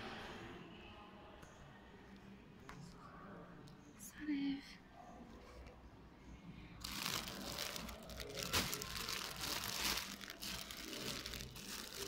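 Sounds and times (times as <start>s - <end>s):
plastic packaging crinkling: 6.8s - 12.0s.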